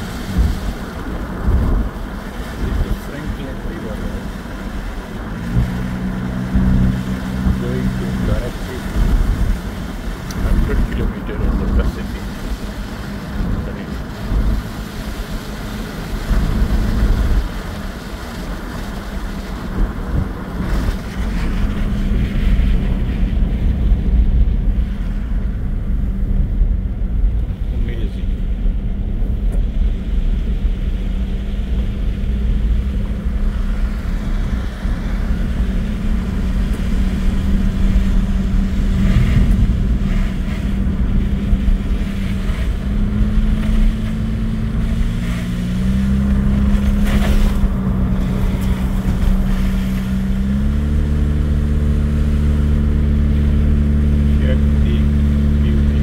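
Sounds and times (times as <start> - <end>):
car engine hum: 0.0 - 56.0
tyres on wet road: 0.0 - 56.0.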